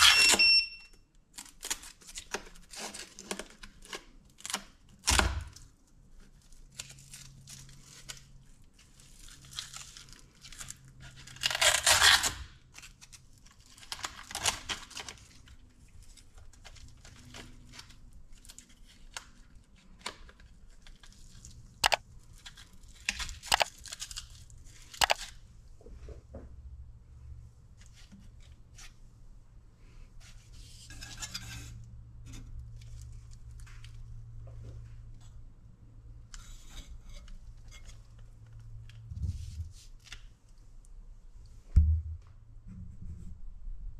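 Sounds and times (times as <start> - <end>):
velcro straps ripping: 9.2 - 13.2
sharp clicks: 23.5 - 23.7, 25.0 - 25.2.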